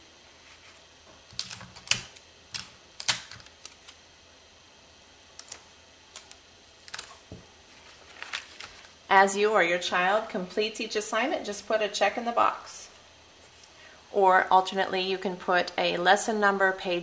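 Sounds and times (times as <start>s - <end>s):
paper and tape rustling: 6.2s - 9.0s.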